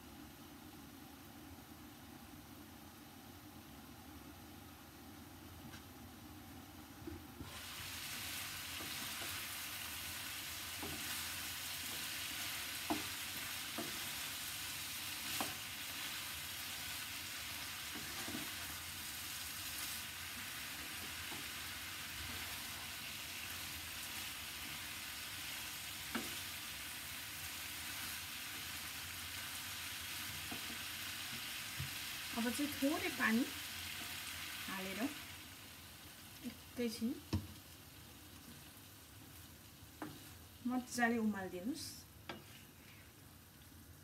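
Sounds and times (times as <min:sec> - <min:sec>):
vegetables sizzling in a pan: 0:06.6 - 0:44.0
wooden spatula knocking on pan: 0:12.8 - 0:14.2, 0:37.3 - 0:37.6.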